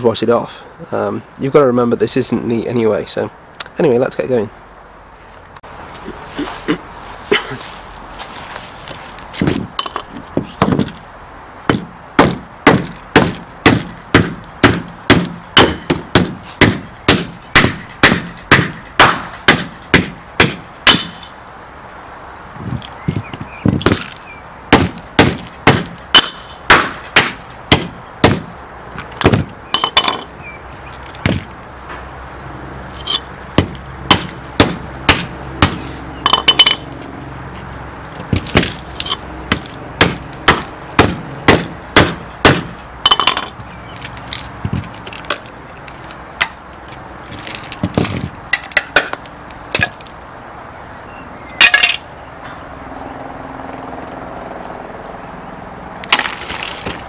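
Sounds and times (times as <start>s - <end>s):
hatchet chopping plastic case: 11.7s - 21.1s, 23.8s - 26.0s, 26.7s - 28.5s, 29.2s - 29.6s, 38.2s - 38.8s.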